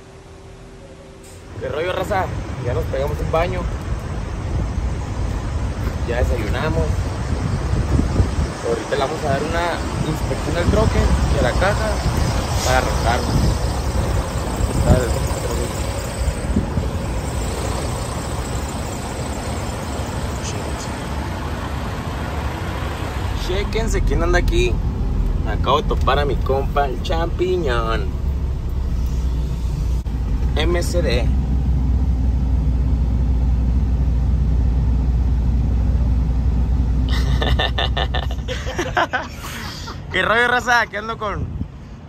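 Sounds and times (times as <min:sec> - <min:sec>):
low rumble and hiss: 0:00.0 - 0:42.0
wind buffeting microphone: 0:03.7 - 0:18.8, 0:41.2 - 0:42.0
truck diesel engine idling: 0:09.8 - 0:37.1.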